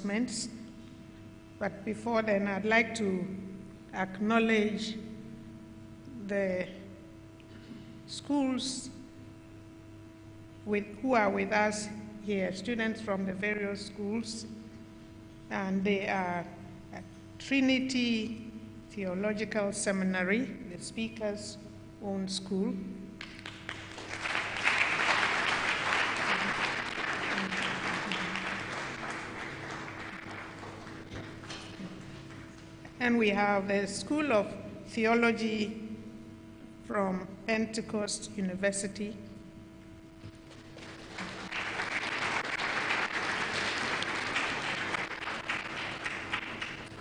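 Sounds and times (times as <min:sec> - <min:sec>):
audience applauding: 0:23.2 - 0:32.6, 0:40.8 - 0:47.0.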